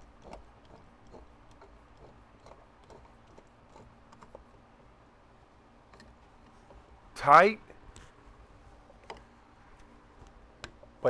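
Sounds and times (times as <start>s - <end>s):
metal clicks and taps: 9.0s - 10.9s.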